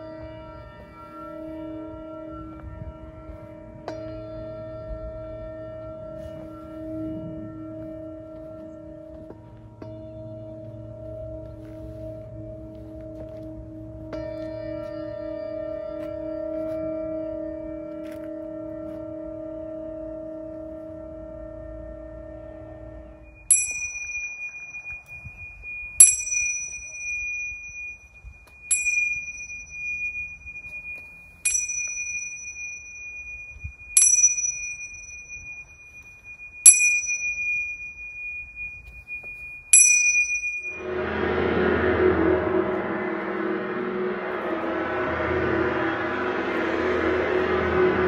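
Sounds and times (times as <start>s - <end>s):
gong: 0.0s - 39.2s, 39.8s - 48.0s
singing bowl ringing: 5.8s - 48.0s
small high-pitched bell strikes: 23.4s - 40.8s.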